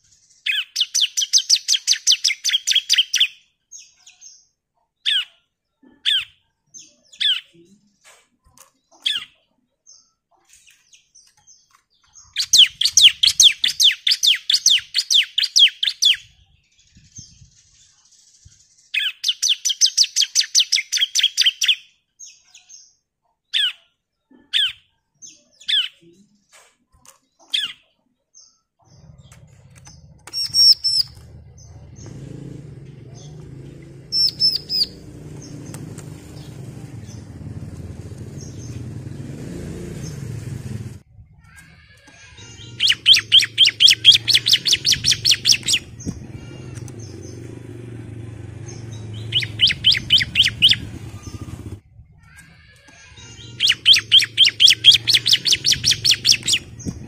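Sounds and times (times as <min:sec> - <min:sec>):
bird chirps and trills: 0:00.0 - 0:40.6, 0:41.2 - 0:57.0
high thin bird calls: 0:12.0 - 0:16.4, 0:28.8 - 0:32.3, 0:33.2 - 0:40.3, 0:41.4 - 0:57.0.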